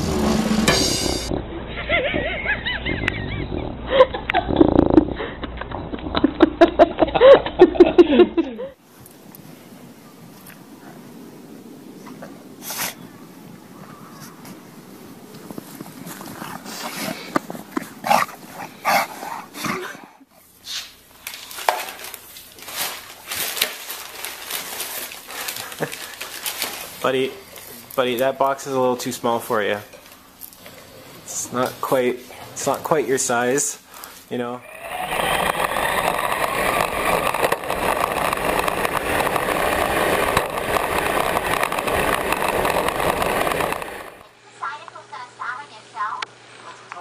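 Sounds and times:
dog grumbling whiny calls: 34.6 - 42.5.

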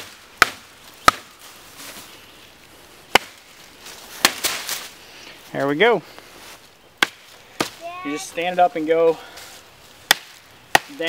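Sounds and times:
knife chopping wood: 0.0 - 1.4, 3.1 - 3.4, 4.2 - 4.6, 7.0 - 7.8, 10.0 - 11.0.

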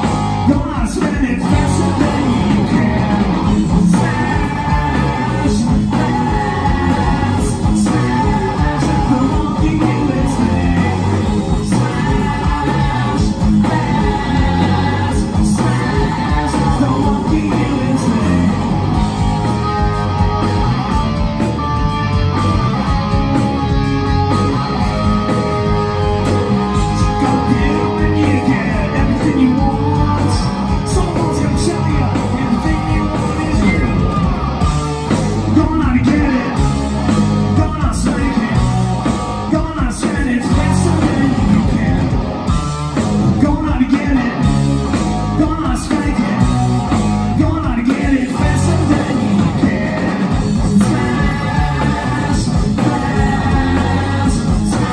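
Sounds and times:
bass guitar: 0.0 - 54.9
drums: 0.0 - 54.9
electric guitar: 0.0 - 54.9
person singing: 0.4 - 18.8, 25.5 - 34.2, 37.5 - 42.3, 45.4 - 54.9.

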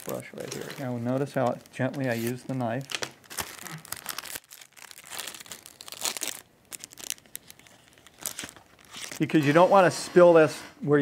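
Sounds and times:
newspaper rustling: 0.0 - 9.7.

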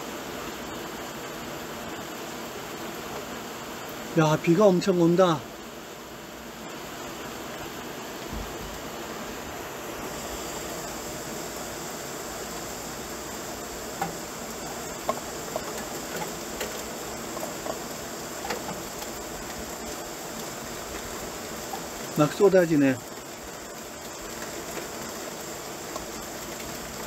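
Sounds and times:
heavy rain pouring: 8.3 - 27.0
water drips and splashes: 13.6 - 27.0.

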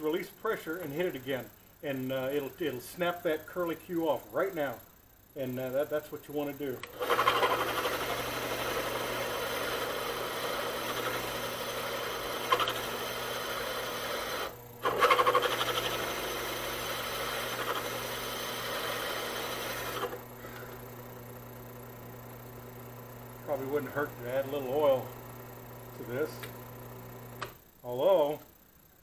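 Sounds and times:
drill press motor humming: 6.4 - 29.0
drill bit grinding through steel: 6.8 - 20.2.

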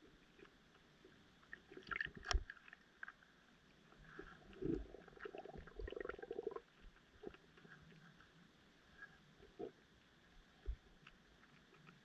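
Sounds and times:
underwater clicks and pops: 2.0 - 2.5.

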